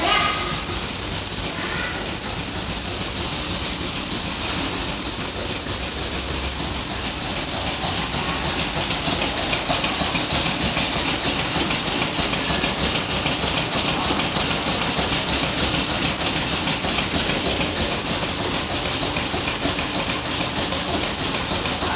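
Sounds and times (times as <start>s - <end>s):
engine with rhythmic clatter: 0.0s - 21.9s.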